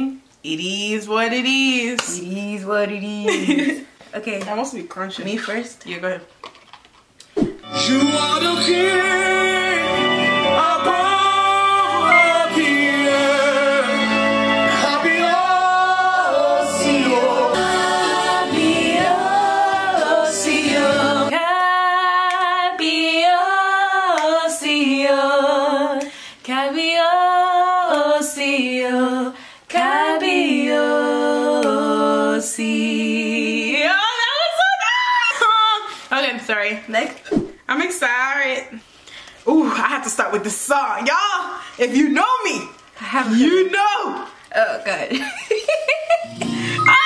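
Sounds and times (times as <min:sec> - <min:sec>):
backing track with bass: 0:07.5 - 0:21.3
women singing worship song: 0:10.5 - 0:36.1.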